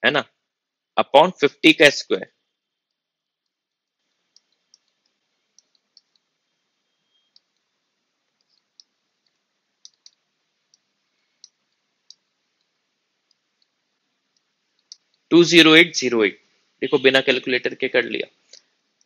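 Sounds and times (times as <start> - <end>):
low room hiss: 0.0 - 19.0
stylus tapping on pen tablet: 2.9 - 6.3, 8.3 - 13.8.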